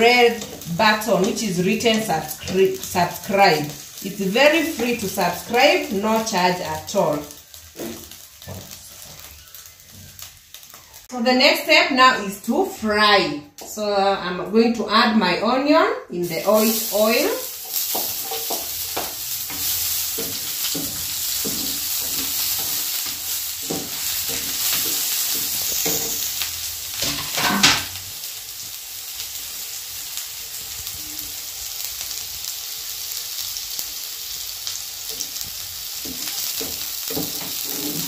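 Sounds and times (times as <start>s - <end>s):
onion sizzling in oil: 0.0s - 13.0s, 16.2s - 38.0s
spatula scraping pan: 16.4s - 28.0s, 35.1s - 38.0s
spatula knocking on pan: 17.7s - 26.3s, 36.0s - 38.0s.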